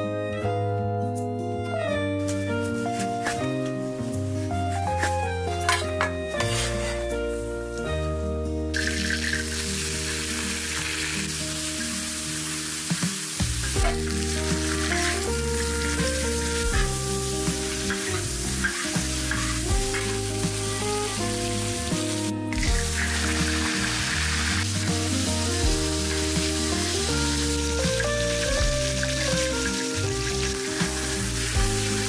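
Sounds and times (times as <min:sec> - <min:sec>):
metal spatula scraping wok: 0:04.4 - 0:07.2, 0:13.8 - 0:21.2
meat sizzling in a wok: 0:08.7 - 0:32.0.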